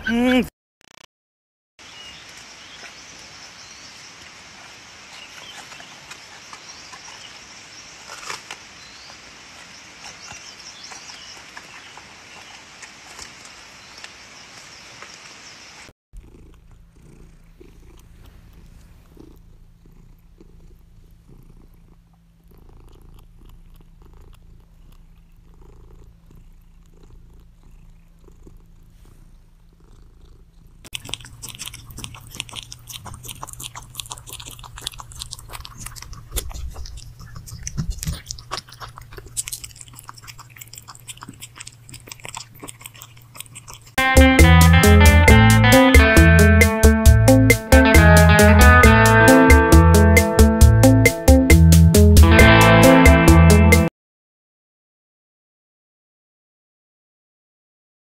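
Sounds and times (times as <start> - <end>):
panda chewing bamboo: 16.2 - 46.1
cat purring: 16.2 - 52.8.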